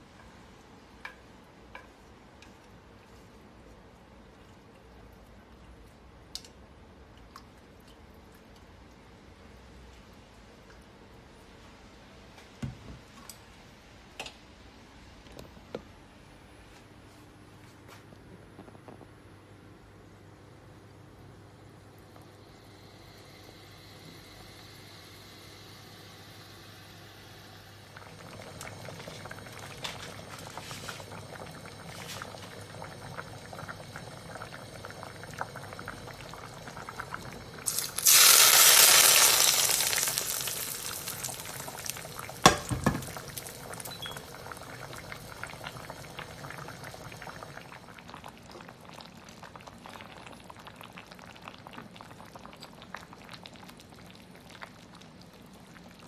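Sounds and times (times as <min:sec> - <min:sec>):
hotpot bubbling: 0:21.5 - 0:56.0
hot oil sizzling: 0:37.6 - 0:44.4.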